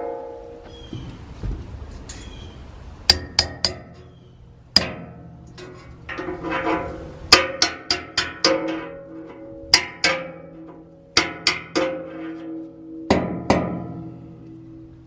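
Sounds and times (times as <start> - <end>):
ringing steel deck: 0.0 - 1.2, 3.1 - 15.0
hammer tapping steel punch: 3.1 - 4.1.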